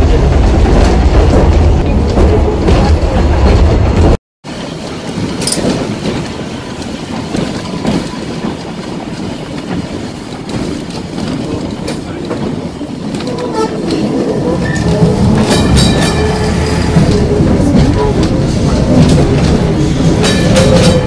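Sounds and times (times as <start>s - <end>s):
tram wheels rumbling on rails: 0.0s - 21.0s.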